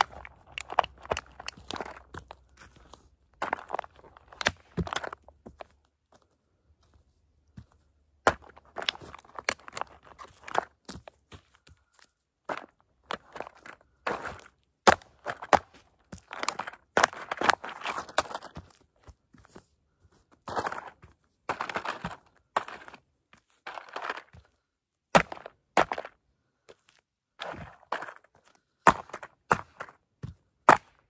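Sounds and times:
toy truck cracking and crunching: 0.0 - 5.3, 8.3 - 11.0, 12.5 - 18.6, 23.7 - 24.4.

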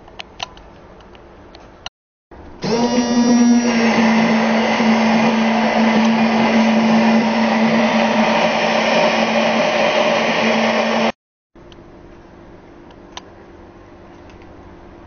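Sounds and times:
blender churning apples: 2.6 - 11.2
hand blender motor humming: 2.6 - 11.2.

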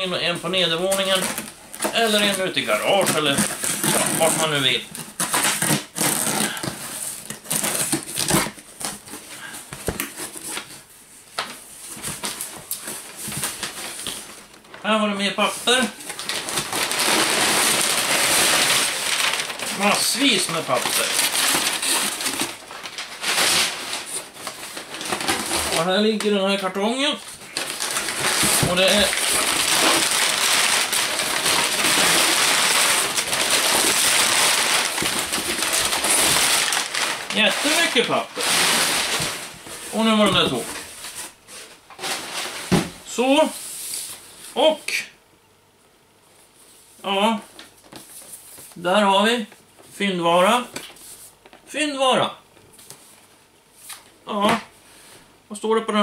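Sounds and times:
packing paper rustling: 0.0 - 44.2
packing tape peeling and tearing: 0.9 - 9.0, 16.0 - 25.9, 27.5 - 39.3
cardboard flaps folding: 15.8 - 26.3, 27.4 - 41.3.

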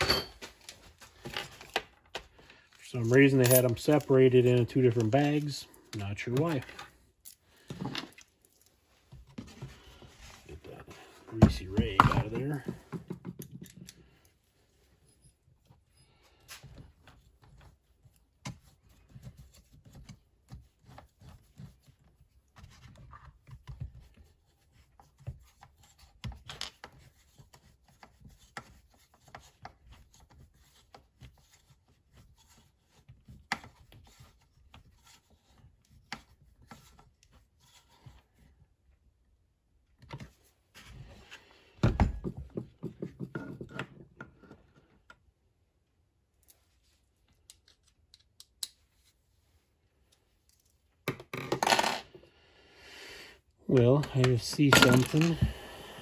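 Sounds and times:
tools clicking and scraping plastic: 47.2 - 48.9, 53.8 - 55.5.

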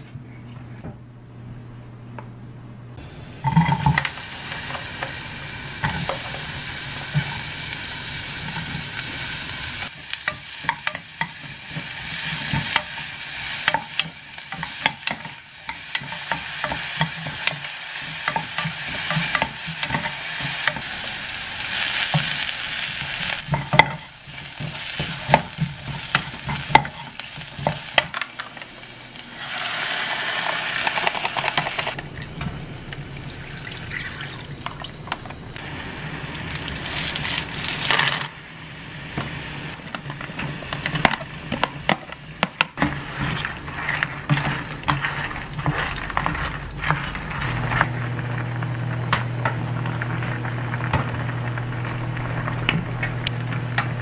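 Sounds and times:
onion sizzling in a pot: 3.0 - 32.0, 35.6 - 54.0
wooden spatula scraping a pan: 10.0 - 28.2, 42.8 - 48.5.

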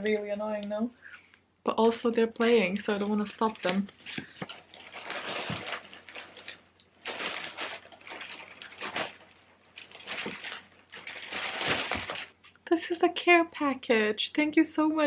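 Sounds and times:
plastic wrap rustling: 2.6 - 12.6.

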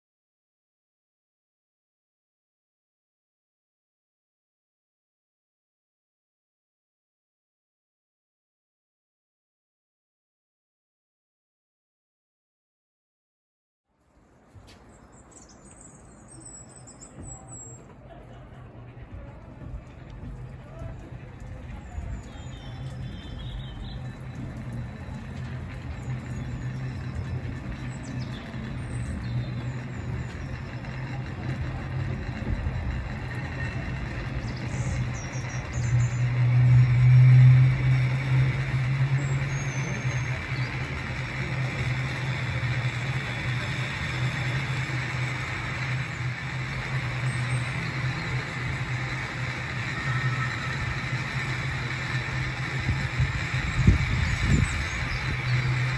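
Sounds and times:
railway car rumbling on track: 14.4 - 55.9.

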